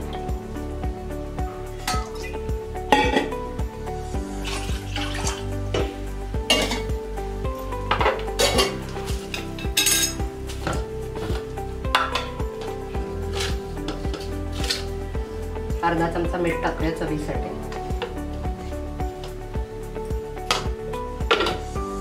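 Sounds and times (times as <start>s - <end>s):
background music: 0.0s - 22.0s
water pouring into pot: 4.3s - 5.6s
steel utensils clinking: 6.5s - 6.9s, 8.1s - 10.8s.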